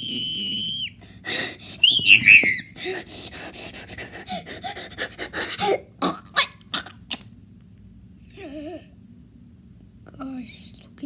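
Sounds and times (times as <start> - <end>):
person burping: 6.0 - 7.0.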